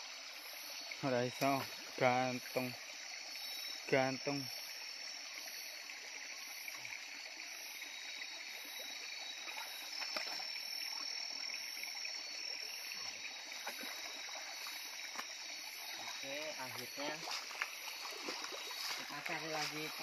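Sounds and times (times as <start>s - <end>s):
splashes from wading: 9.4s - 11.2s, 13.5s - 20.0s
stream rushing over rocks: 13.0s - 20.0s.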